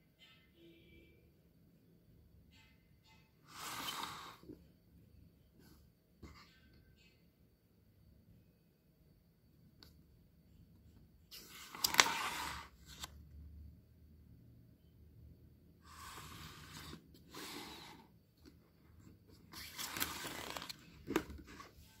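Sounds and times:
book pages turning: 0:11.3 - 0:13.2, 0:19.5 - 0:22.0.

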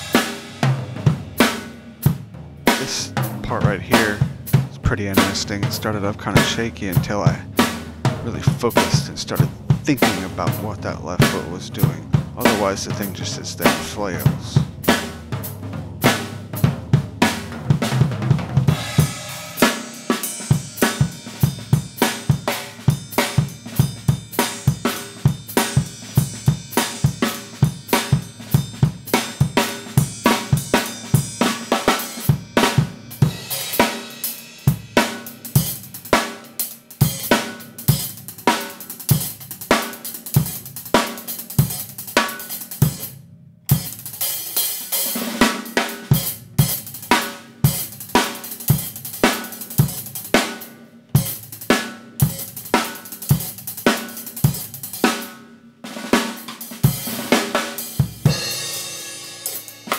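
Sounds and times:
hi-hat and cymbal wash: 0:00.0 - 0:00.7, 0:18.7 - 0:43.1, 0:52.2 - 0:55.1
bass drum: 0:00.0 - 0:19.4
snare and drum strokes: 0:00.0 - 0:59.9.

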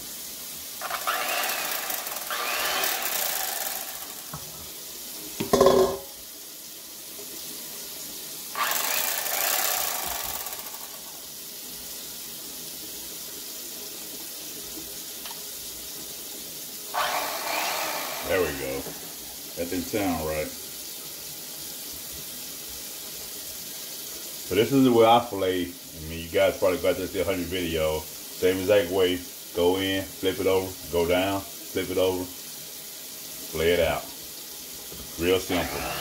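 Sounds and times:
electric knife running: 0:00.8 - 0:04.5, 0:08.6 - 0:11.2, 0:16.9 - 0:19.2, 0:35.4 - 0:36.0.

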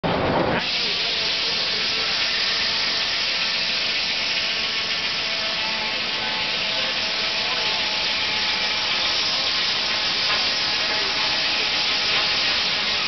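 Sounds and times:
steam hissing: 0:00.5 - 0:13.0.

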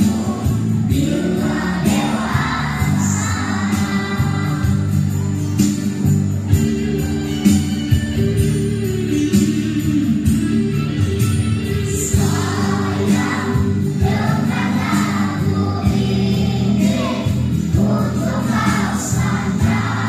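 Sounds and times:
children's choir singing: 0:00.0 - 0:05.1, 0:12.0 - 0:20.0
musical accompaniment: 0:00.0 - 0:20.0.

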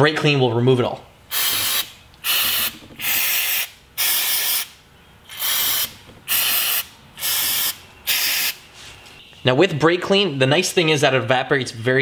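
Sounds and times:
aerosol spray hissing: 0:01.3 - 0:04.7, 0:05.3 - 0:08.6.

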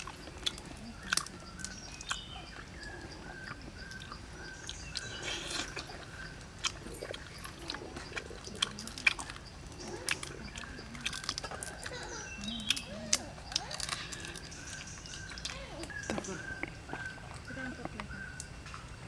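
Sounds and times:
chewing: 0:00.0 - 0:18.8
crayfish shell cracking: 0:10.1 - 0:16.7.

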